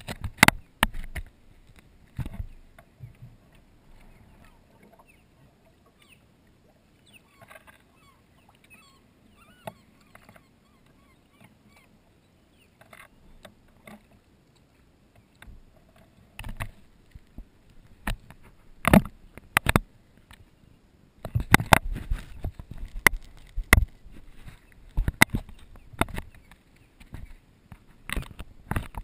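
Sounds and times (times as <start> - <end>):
distant bird calls: 4.0 - 6.3, 6.9 - 14.2.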